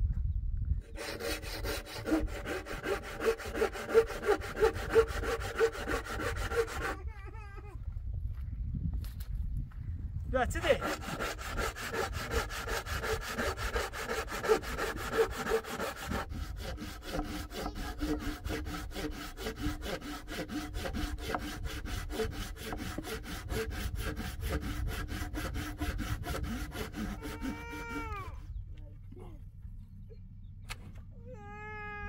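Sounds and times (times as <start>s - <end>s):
hand saw cutting wood: 0.8s - 7.0s, 10.6s - 28.3s.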